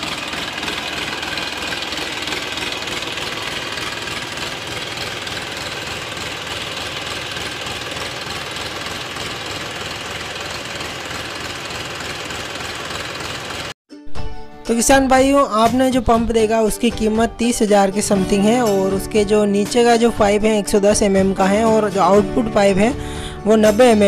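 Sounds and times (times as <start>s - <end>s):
tractor diesel engine running: 0.0s - 13.8s.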